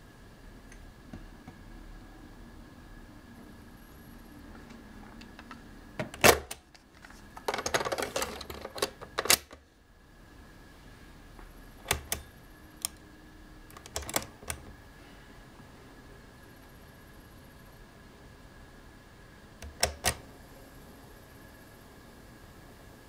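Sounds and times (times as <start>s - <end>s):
cassette recorder buttons clacking: 11.8s - 13.0s, 13.7s - 14.7s, 19.6s - 20.2s.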